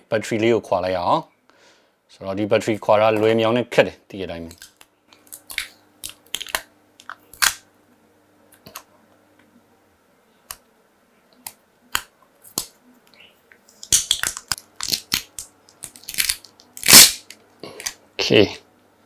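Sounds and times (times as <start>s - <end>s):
adhesive battery peeling snaps: 13.8s - 18.0s.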